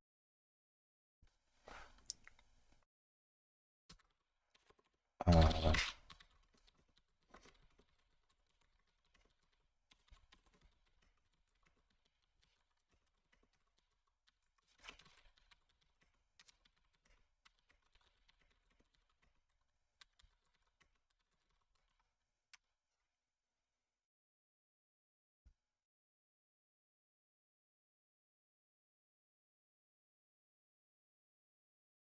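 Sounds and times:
typing on computer keyboard: 5.9s - 22.6s.

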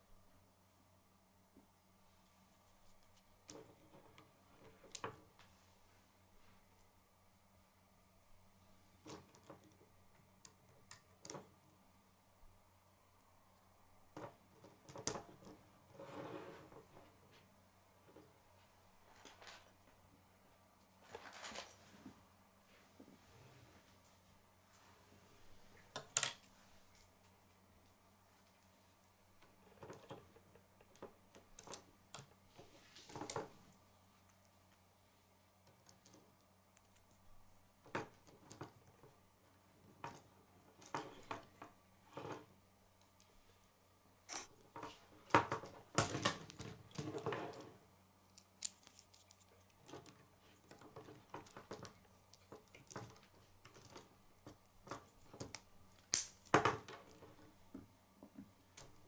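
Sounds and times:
plastic pieces clicking and snapping: 48.3s - 57.2s.

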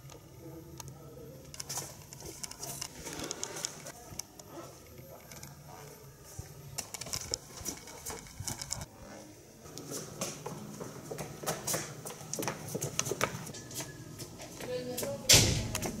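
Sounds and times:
footsteps on hard floor: 9.8s - 16.0s.

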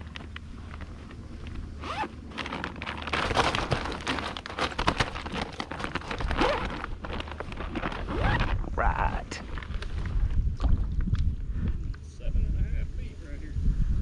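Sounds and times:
bag rustling: 0.0s - 10.9s
bag zipper being pulled: 1.8s - 10.0s.

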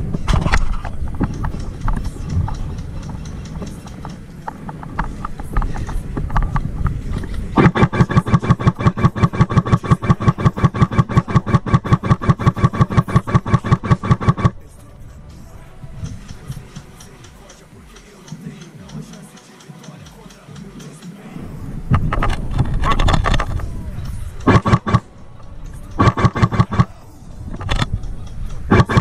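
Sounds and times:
airsoft gun full-auto burst: 7.6s - 14.6s, 24.5s - 25.0s, 25.9s - 26.9s, 28.7s - 29.0s.

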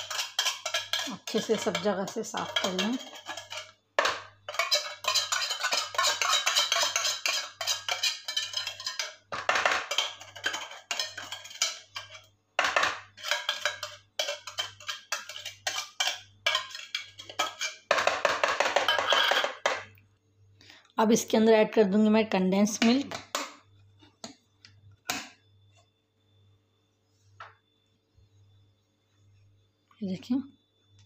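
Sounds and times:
metal spoon scraping tin can: 0.0s - 19.7s.

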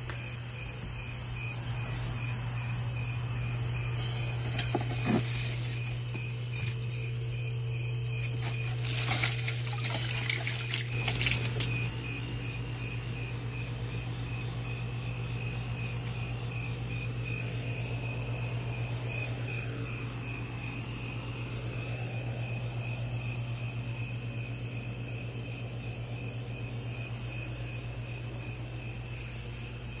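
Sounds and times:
crickets chirping: 0.0s - 30.0s
low steady hum: 0.0s - 30.0s
handling noises: 3.3s - 7.0s, 8.2s - 11.9s.

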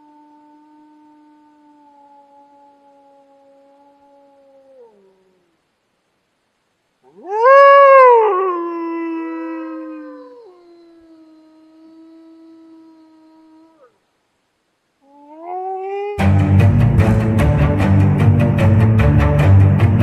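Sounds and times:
wolf howling: 0.0s - 5.6s, 7.1s - 13.9s, 15.0s - 16.4s
music: 16.2s - 20.0s.

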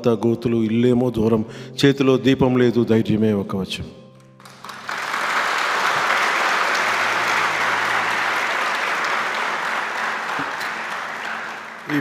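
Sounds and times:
crowd applauding: 4.4s - 12.0s.

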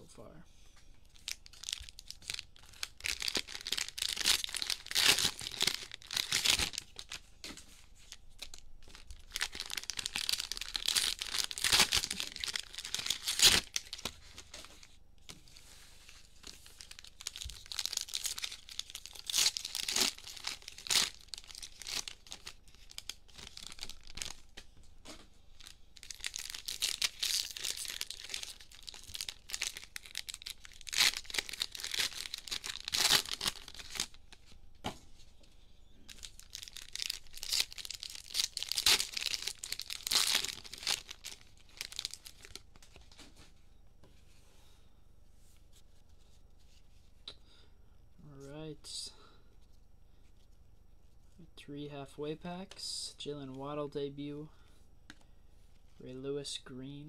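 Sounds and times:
plastic wrappers crinkling: 1.0s - 34.6s, 36.0s - 43.5s
plastic wrapper tearing: 1.1s - 14.9s, 16.2s - 24.6s, 25.5s - 34.5s, 36.1s - 43.3s.

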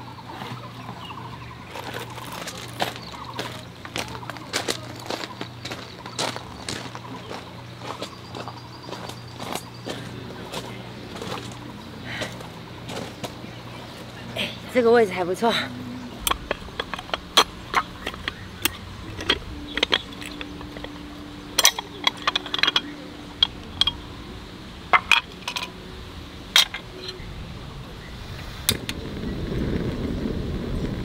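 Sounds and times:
low rushing noise: 6.0s - 31.0s
metal clicks and clinks: 16.2s - 24.0s, 24.9s - 25.8s, 26.6s - 27.2s.

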